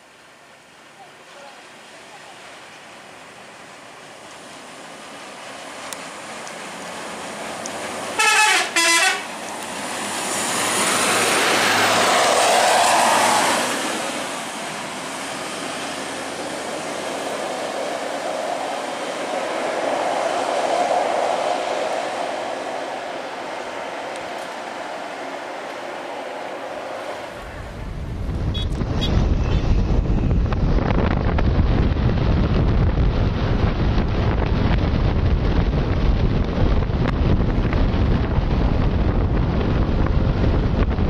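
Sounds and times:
traffic noise: 0.0s - 41.0s
heavy vehicle passing: 4.4s - 30.0s
vehicle horn toots: 8.2s - 9.3s, 28.5s - 29.7s.

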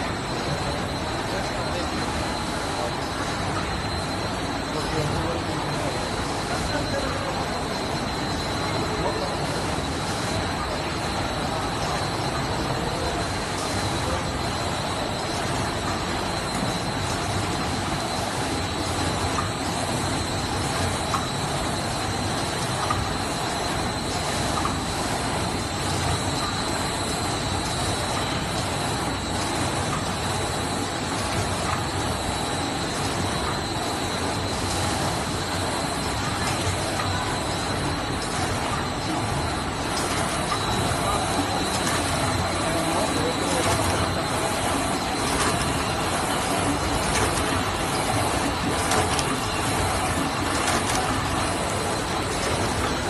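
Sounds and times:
machine running: 0.0s - 53.0s
thin steady high tone: 0.0s - 53.0s.

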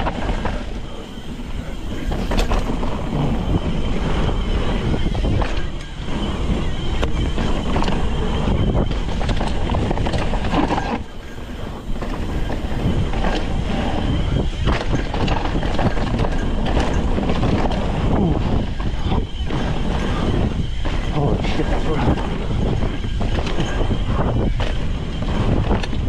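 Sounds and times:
clicks and knocks over bumps: 0.0s - 26.0s
mountain bike rattle and tyres: 0.0s - 26.0s
wind buffeting microphone: 0.0s - 26.0s.

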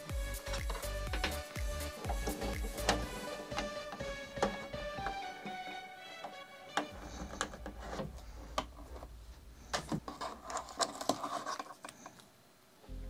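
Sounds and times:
hands rubbing plastic tube: 9.8s - 12.2s.

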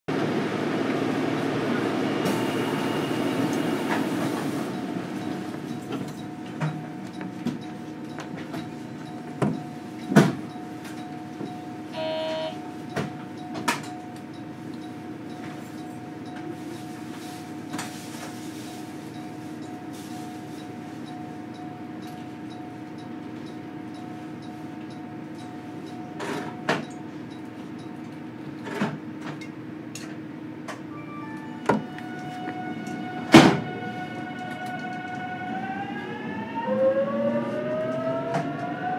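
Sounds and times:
train electrical hum: 0.1s - 38.9s
knocks and clicks in train car: 3.5s - 11.7s, 12.6s - 18.4s, 20.6s - 30.9s, 32.9s - 33.8s.

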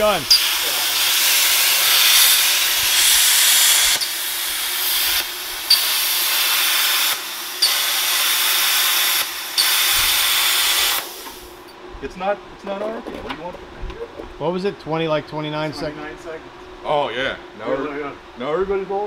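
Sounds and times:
plasma cutter hissing: 0.0s - 11.6s
plasma cutter sharp pop: 0.3s - 11.4s.

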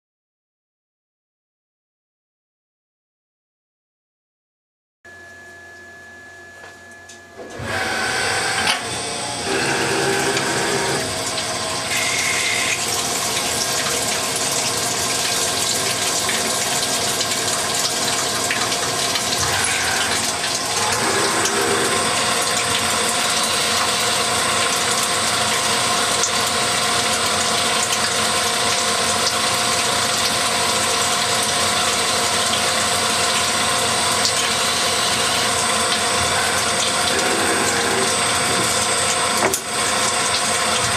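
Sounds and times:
short pitched machine whines: 5.1s - 12.9s, 19.4s - 25.3s
lathe running: 7.5s - 14.8s, 19.4s - 25.3s, 32.9s - 40.4s.

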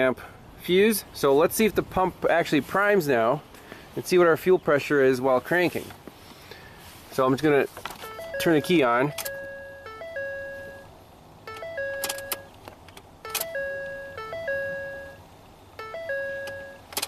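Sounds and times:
dashboard warning chime: 8.0s - 12.5s, 13.2s - 17.0s.

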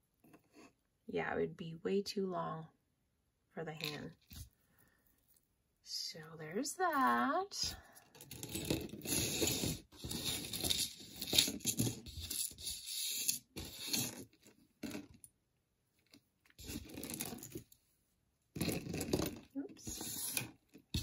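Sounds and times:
rustling and crinkling of jewelry: 6.2s - 15.3s, 15.9s - 18.0s, 18.6s - 21.0s.

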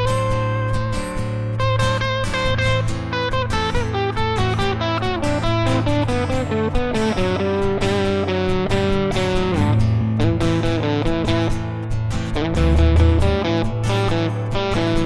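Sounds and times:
electric guitar picking notes: 0.0s - 15.0s
rock band playing live: 12.4s - 14.5s.

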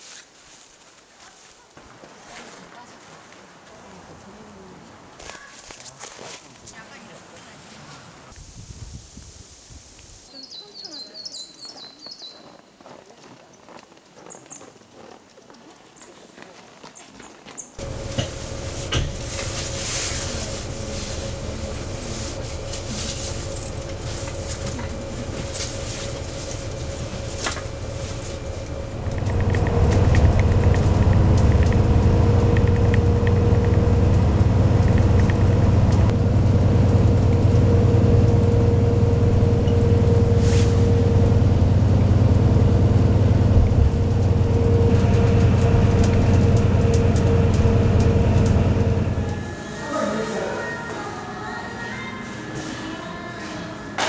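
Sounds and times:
faint steady whine: 17.8s - 36.3s
bus engine and road rumble: 17.8s - 50.5s.

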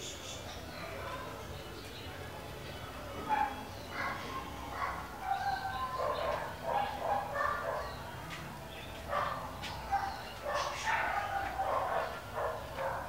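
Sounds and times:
dog barking and yipping: 3.3s - 8.0s, 9.1s - 13.0s.

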